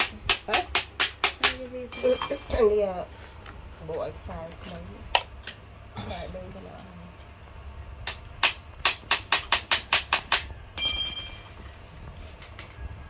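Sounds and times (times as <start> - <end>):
bright metallic ring: 1.9 - 2.8, 10.8 - 11.6.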